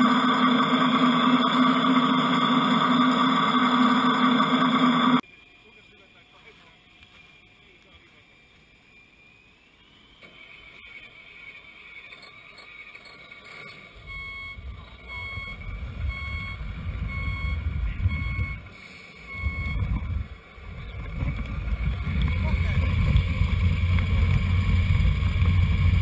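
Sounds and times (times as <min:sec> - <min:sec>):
reversing alarm beeps: 0:00.0 - 0:20.1
high electric whine: 0:00.0 - 0:26.0
strong low rumble: 0:14.1 - 0:18.6, 0:19.3 - 0:26.0.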